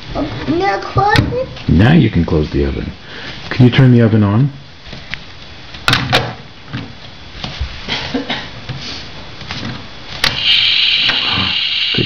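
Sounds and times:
toy burner sizzling hiss: 0:10.2 - 0:12.0.

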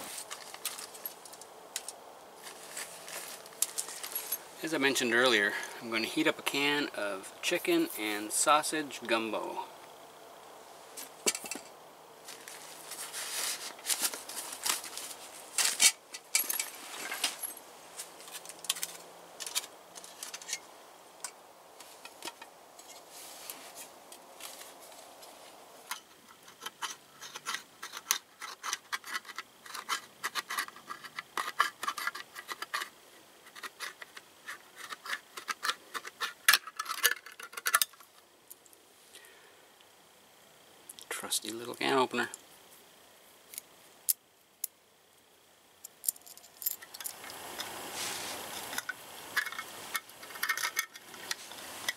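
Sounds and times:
gear clinking and rattling: 0:00.1 - 0:04.6, 0:12.3 - 0:20.6, 0:45.9 - 0:47.7.

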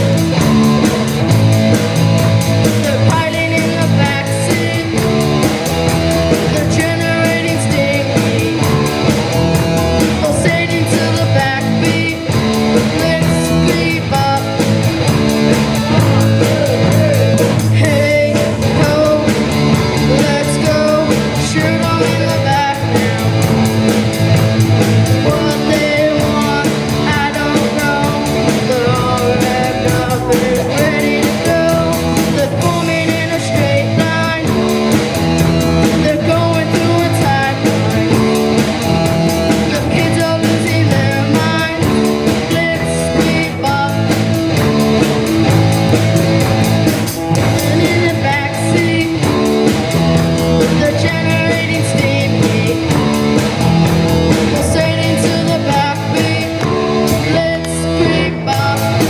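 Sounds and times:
bass guitar: 0:00.0 - 0:59.0
drums with steady beat: 0:00.0 - 0:59.0
electric guitar: 0:00.0 - 0:59.0
child singing through pa: 0:54.5 - 0:59.0.

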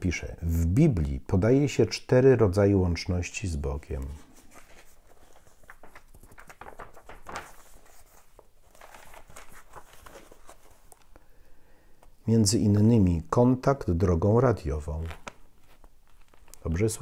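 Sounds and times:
paper pages rustling: 0:03.8 - 0:11.2, 0:14.8 - 0:17.0.

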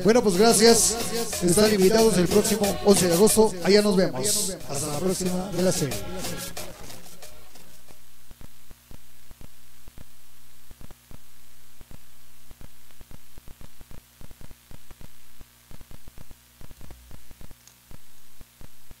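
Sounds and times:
static hiss: 0:00.0 - 0:19.0
low electrical hum: 0:06.6 - 0:19.0.

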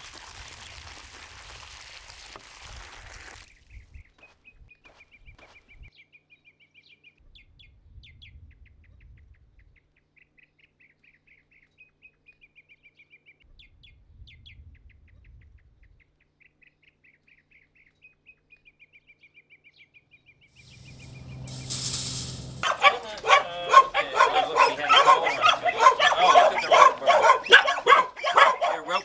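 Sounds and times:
small bird chirping: 0:03.5 - 0:22.8
low rumble: 0:20.6 - 0:22.7
loud rushing noise: 0:20.6 - 0:23.9.

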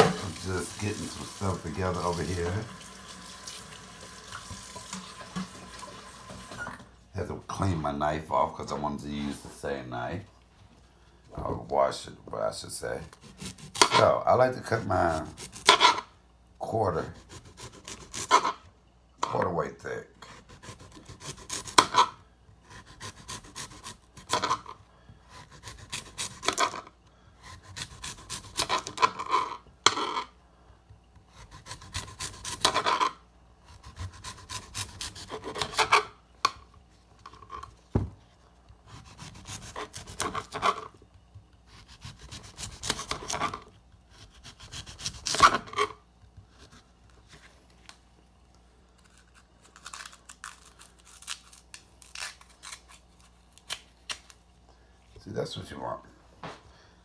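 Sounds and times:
knife sawing through vegetable: 0:13.0 - 0:16.0, 0:16.9 - 0:18.6, 0:20.2 - 0:24.7, 0:25.3 - 0:26.8, 0:27.4 - 0:29.4, 0:31.3 - 0:33.0, 0:33.7 - 0:36.0, 0:38.9 - 0:40.8, 0:41.7 - 0:45.9.

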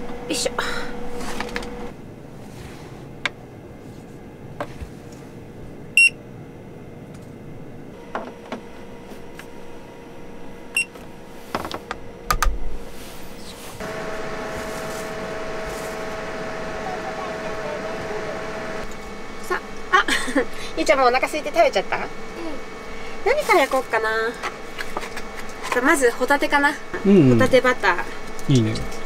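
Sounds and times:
machine hum with whine: 0:00.0 - 0:29.0
appliance beeping: 0:05.9 - 0:06.2, 0:10.6 - 0:11.0, 0:13.8 - 0:19.4.

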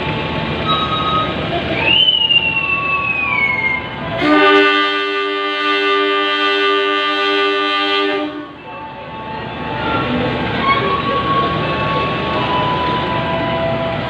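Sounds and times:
low train rumble: 0:00.0 - 0:14.0
train horn blast: 0:04.2 - 0:08.6.

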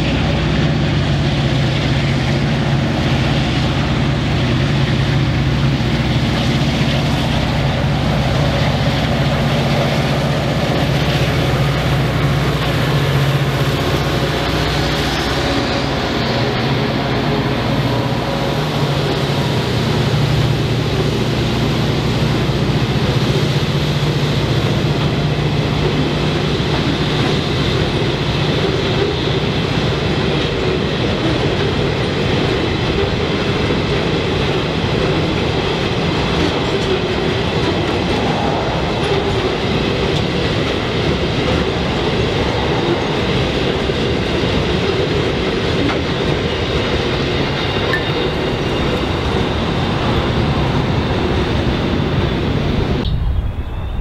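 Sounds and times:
train wheels rolling on rails: 0:00.0 - 0:54.0
low hum: 0:36.7 - 0:45.3.

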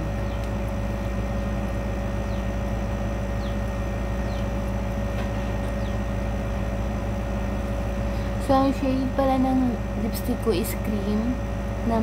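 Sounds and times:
mechanical hum with whine: 0:00.0 - 0:12.0.

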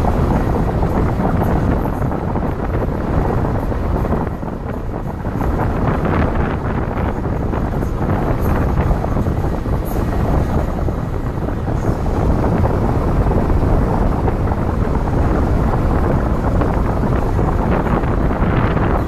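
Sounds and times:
car driving noise: 0:00.0 - 0:19.0
wind buffeting microphone: 0:00.0 - 0:19.0.

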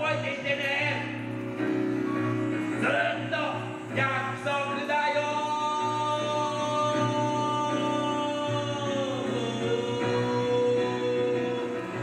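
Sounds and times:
held instrumental chords: 0:00.0 - 0:12.0
person singing: 0:02.7 - 0:12.0.

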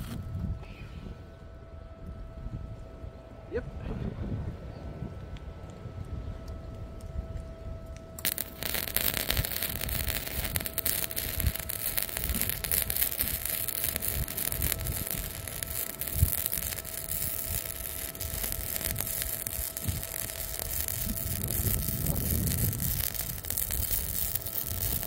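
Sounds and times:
wind rumble on microphone: 0:00.0 - 0:25.0
welding arc crackling: 0:08.2 - 0:25.0.

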